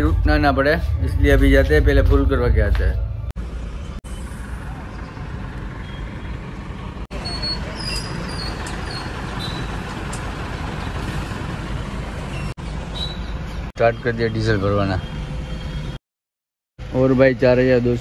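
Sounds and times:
vehicle engines rumbling: 0.0 - 16.0, 16.8 - 18.0
short high squeaks or beeps: 7.1 - 9.7.

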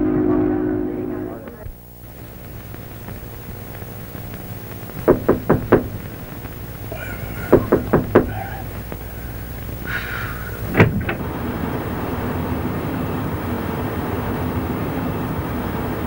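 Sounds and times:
knocking on wooden door: 4.9 - 6.3, 6.9 - 8.8.

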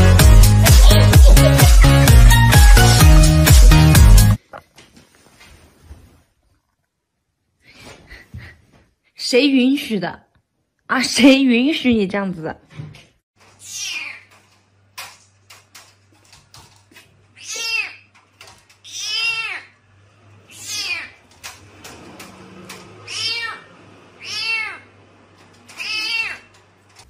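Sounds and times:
cat meowing: 18.9 - 19.7, 20.5 - 21.2, 23.0 - 24.9, 25.7 - 26.5.

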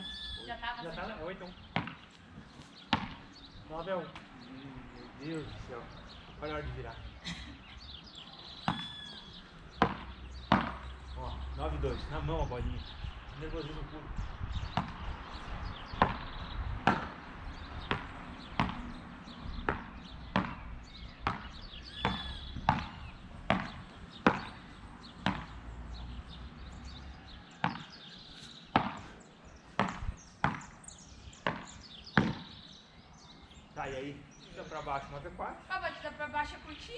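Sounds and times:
racquets striking ball: 1.7 - 2.1, 2.9 - 3.3, 8.6 - 8.9, 9.7 - 10.9, 14.8 - 15.1, 15.9 - 17.2, 17.8 - 25.6, 27.5 - 28.0, 28.7 - 30.8, 31.4 - 32.6.

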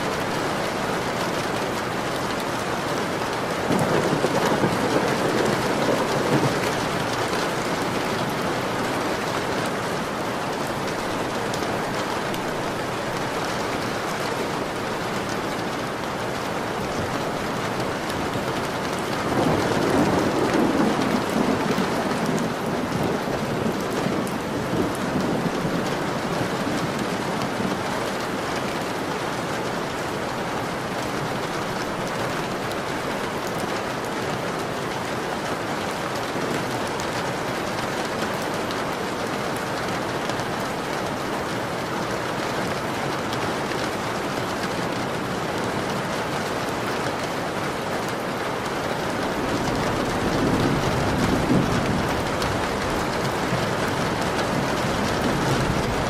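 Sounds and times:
rain falling: 0.0 - 56.0
thunder rumbling: 3.4 - 13.4, 17.0 - 27.8, 49.0 - 56.0.

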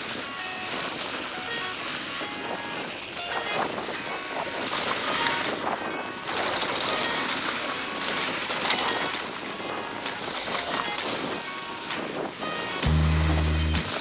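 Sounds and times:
bike clicking and clattering: 4.6 - 11.2.

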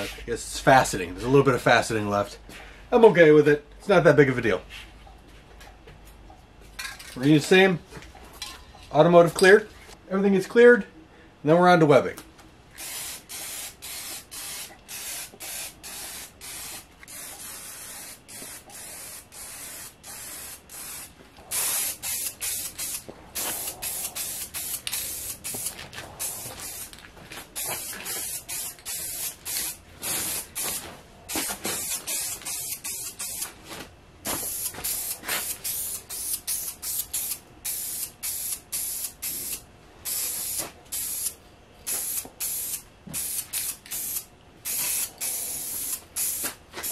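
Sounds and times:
aerosol spray can hissing: 12.8 - 26.9, 34.4 - 46.9.

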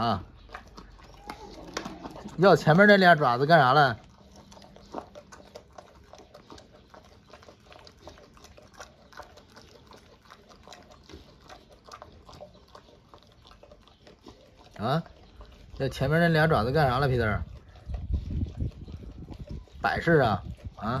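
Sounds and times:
dog chewing on bone: 0.0 - 21.0.

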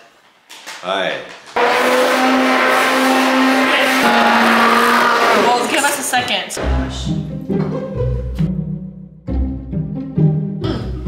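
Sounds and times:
immersion blender motor whine: 1.6 - 5.9.

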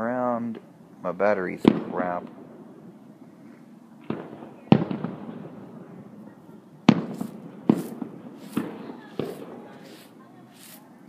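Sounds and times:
firework shells booming: 1.6 - 2.8, 4.0 - 6.0, 6.9 - 10.2
firework hissing: 6.9 - 11.0.

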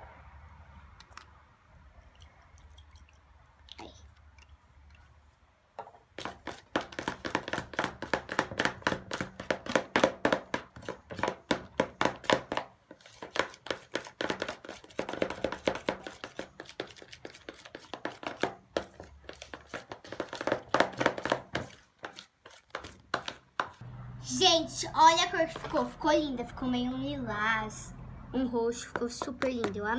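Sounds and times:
spoon stirring slime in plastic bowl: 5.8 - 23.8, 28.8 - 29.9.

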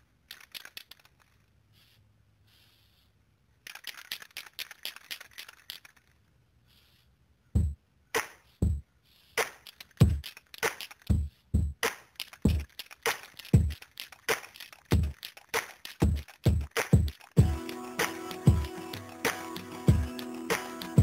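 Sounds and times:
hip-hop drum beat: 7.6 - 8.8, 9.4 - 13.8, 14.9 - 21.0
dense crackling clicks: 12.1 - 17.4.

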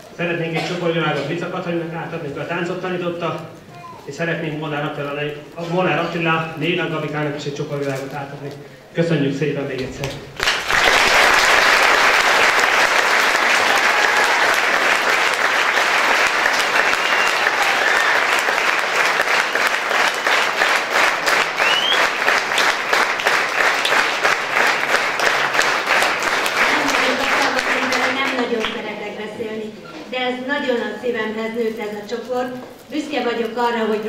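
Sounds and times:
audience applause: 10.4 - 28.8.

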